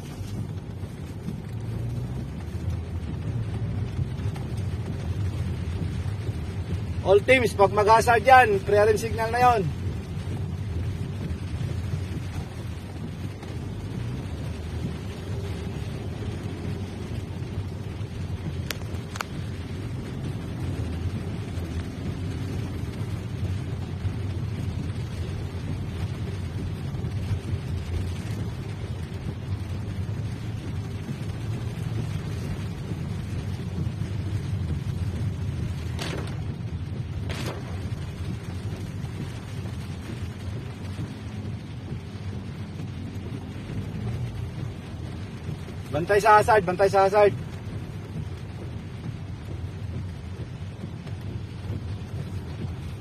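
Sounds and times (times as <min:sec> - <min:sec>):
car engine and tyres rumbling: 0:00.0 - 0:53.0.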